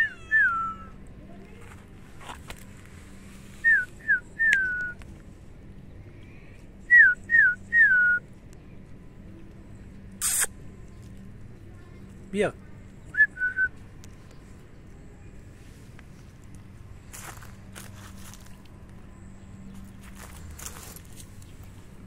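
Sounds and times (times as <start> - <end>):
person whistling: 3.6 - 5.0, 6.9 - 8.2, 13.2 - 13.7.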